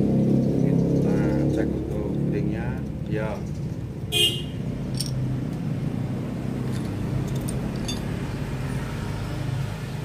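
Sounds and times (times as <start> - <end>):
faint metallic clinks: 4.9 - 5.2, 6.7 - 8.2.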